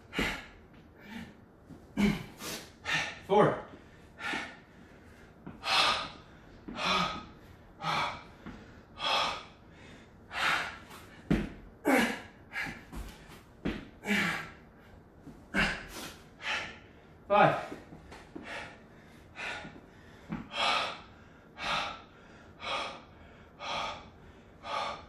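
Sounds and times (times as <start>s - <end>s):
man gasping breaths and grunts: 0.0s - 25.0s
dull thumps on exercise mat: 11.2s - 11.6s, 12.7s - 13.9s.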